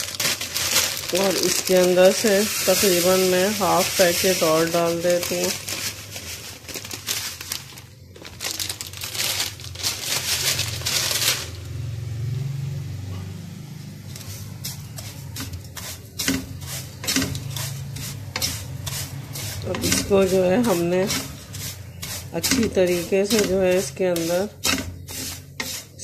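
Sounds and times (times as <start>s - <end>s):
plastic packet crinkling: 0.0s - 11.7s
dry noodles rustling: 0.0s - 11.8s, 14.1s - 26.0s
noodles scraping in pan: 0.0s - 11.8s, 13.9s - 26.0s.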